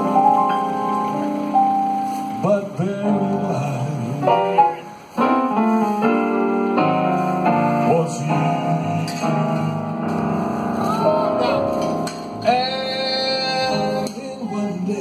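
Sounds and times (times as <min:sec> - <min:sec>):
live band music over speakers: 0:00.0 - 0:15.0
piano-like keyboard: 0:00.0 - 0:15.0.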